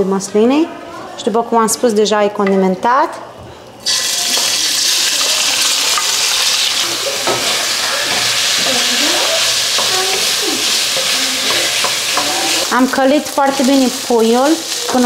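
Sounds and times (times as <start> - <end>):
chicken sizzling in pan: 3.8 - 15.0
wooden spoon stirring: 4.3 - 15.0.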